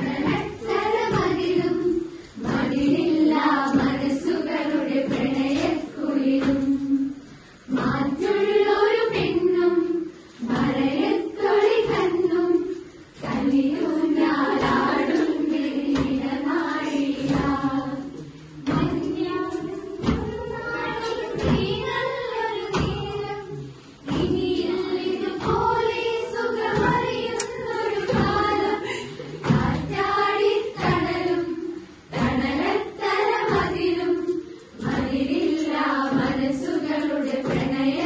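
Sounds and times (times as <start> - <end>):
group singing in chorus: 0.0 - 38.0
low thuds keeping a beat: 0.0 - 38.0.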